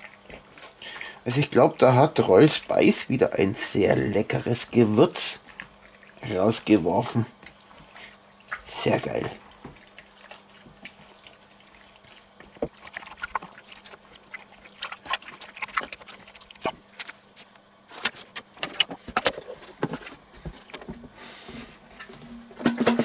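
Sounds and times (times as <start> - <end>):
wet squelching of meat kneaded: 0.0 - 17.9.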